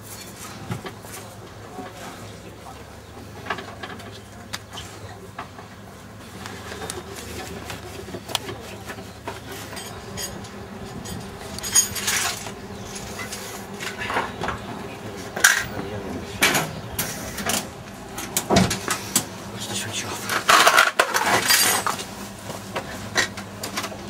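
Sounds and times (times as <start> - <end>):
metal tools clinking: 9.5 - 14.2, 20.3 - 22.1.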